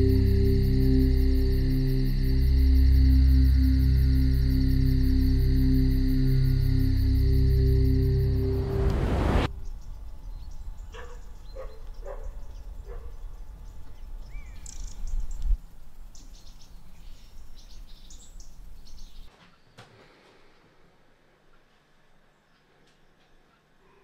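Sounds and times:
low background rumble: 0.0 - 10.9
birds chirping: 0.0 - 15.5.

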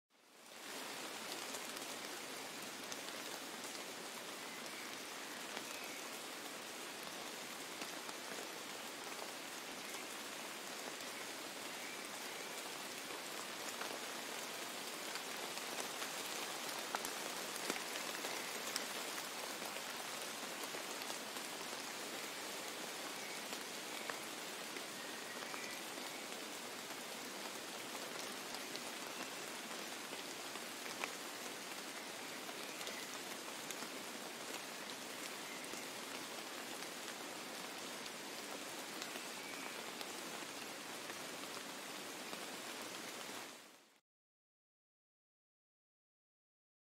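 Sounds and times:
rain on wet snow and brush: 0.2 - 44.0.

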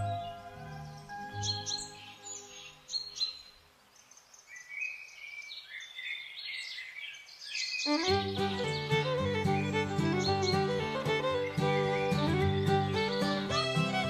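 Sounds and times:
background music: 0.0 - 3.1, 7.9 - 14.0
songbirds chirping: 0.0 - 14.0.

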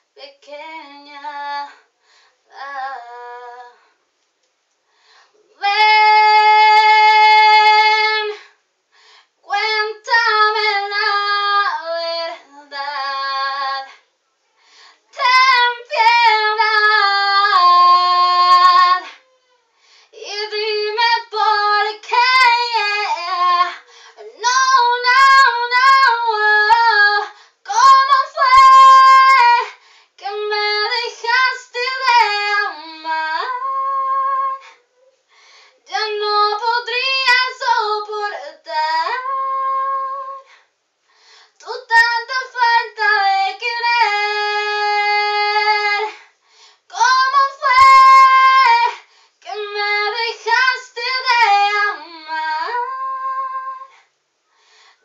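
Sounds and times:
woman singing unaccompanied: 0.0 - 1.9, 2.5 - 3.9, 5.5 - 8.4, 9.4 - 14.0, 15.1 - 19.2, 20.1 - 34.8, 35.8 - 40.5, 41.6 - 46.3, 46.9 - 54.0
singer breathing: 1.8 - 2.5, 4.9 - 5.4, 8.4 - 9.4, 14.6 - 15.1, 29.8 - 30.2, 35.3 - 35.8, 40.4 - 41.6, 46.1 - 46.9, 53.9 - 55.0.

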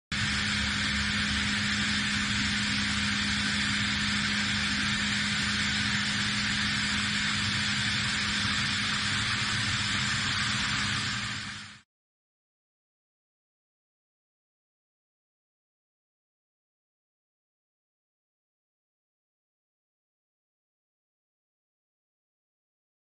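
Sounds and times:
cutting and coolant spray hiss: 0.1 - 11.8
low machine hum: 0.1 - 11.8.

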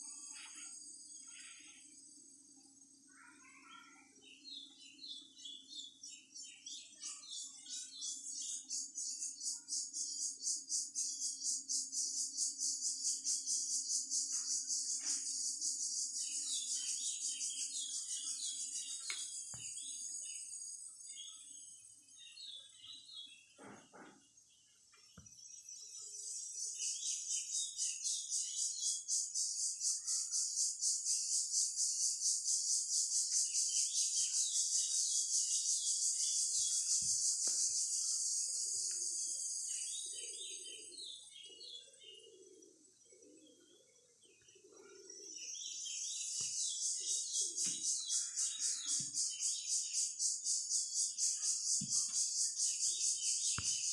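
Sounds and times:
small birds chirping: 0.0 - 53.9
high pulsing insect drone: 45.1 - 53.9.

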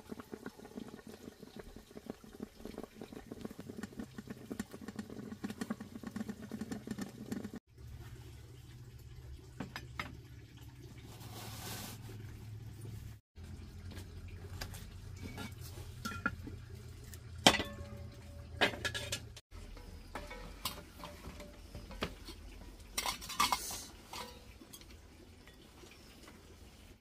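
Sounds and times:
tableware clinking on metal pot: 15.2 - 16.5, 17.4 - 22.4, 23.0 - 24.9.

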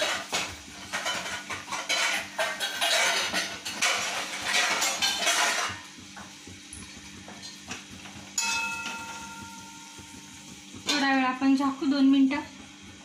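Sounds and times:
spatula scraping in a steel pan: 0.0 - 5.9
ringing metal clank: 8.4 - 9.8.

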